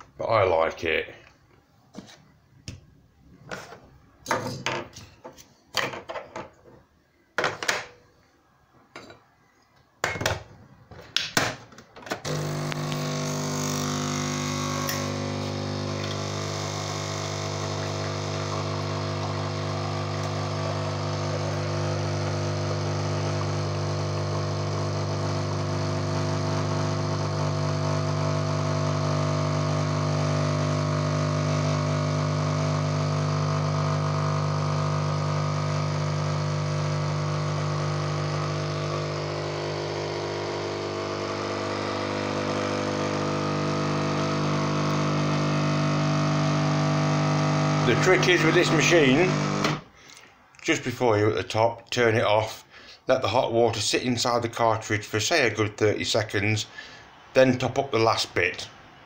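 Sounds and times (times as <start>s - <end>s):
coffee machine pump humming: 12.2s - 49.9s.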